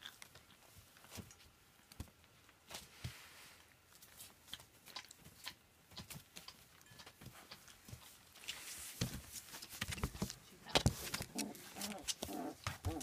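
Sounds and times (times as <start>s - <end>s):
puppies crunching kibble: 0.0s - 2.7s, 9.5s - 13.0s
newspaper rustling: 8.5s - 13.0s.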